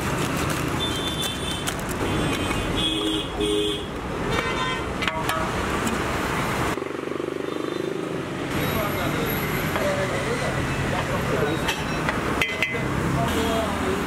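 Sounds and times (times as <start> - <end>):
street traffic: 0.0 - 14.0
vehicle horn toots: 0.9 - 4.9.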